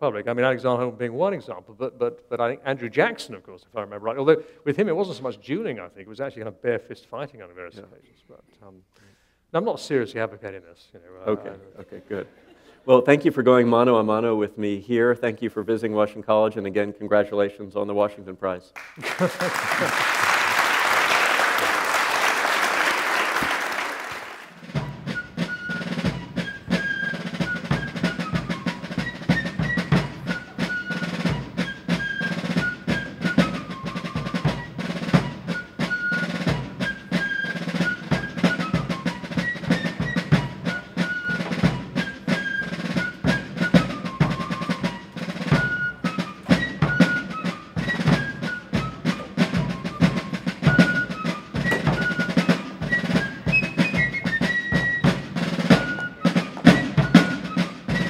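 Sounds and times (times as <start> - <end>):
applause: 18.8 - 24.6
snare and bass drums: 19.0 - 58.0.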